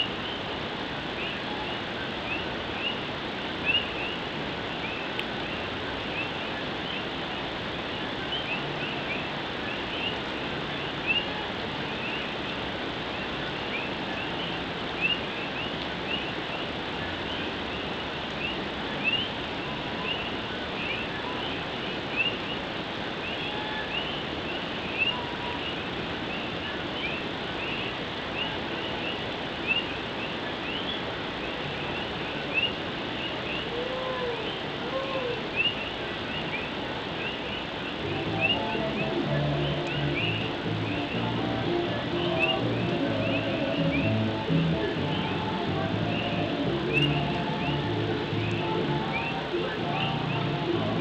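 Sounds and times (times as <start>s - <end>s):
frogs chirping: 1.2s - 3.0s, 3.6s - 7.1s, 8.3s - 12.5s, 13.1s - 22.6s, 23.2s - 33.8s, 35.5s - 41.5s
heavy rain on a tin roof: 7.2s - 51.0s.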